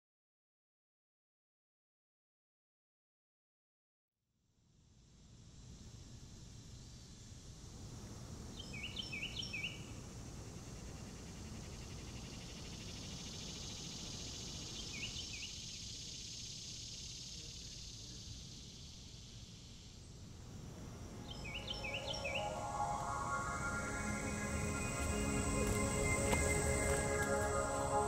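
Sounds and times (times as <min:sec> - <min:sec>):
insect drone: 0:04.7 - 0:28.0
bird chirping: 0:08.6 - 0:09.9, 0:10.8 - 0:28.0.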